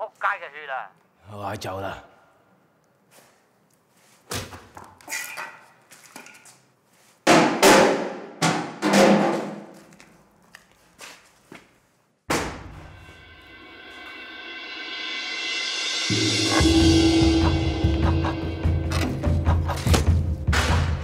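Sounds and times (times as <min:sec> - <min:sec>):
sharp knocks and crashes: 0:12.3 - 0:13.1, 0:17.4 - 0:21.0.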